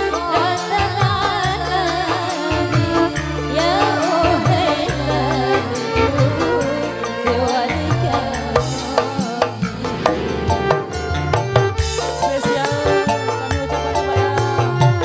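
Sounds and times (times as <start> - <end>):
keyboard: 0.0 - 15.0
woman singing: 0.0 - 15.0
electric bass: 2.8 - 14.0
hand drums beat: 7.8 - 13.8.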